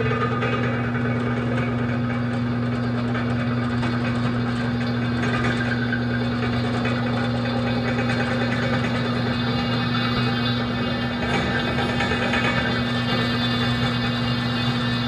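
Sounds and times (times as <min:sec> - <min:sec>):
drill press motor hum: 0:00.0 - 0:15.0
drill bit cutting steel tube: 0:04.4 - 0:15.0.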